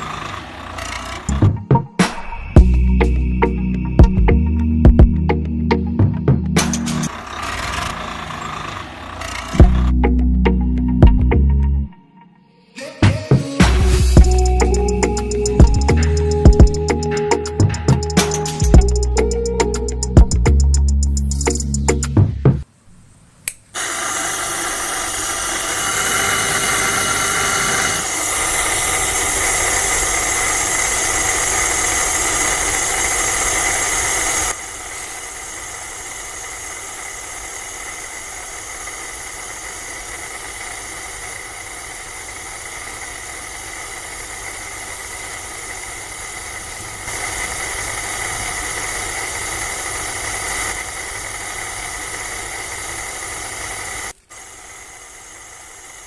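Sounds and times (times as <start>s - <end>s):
small motor whining: 0.0s - 1.4s, 6.9s - 9.9s, 23.8s - 56.0s
hiss: 23.8s - 56.0s.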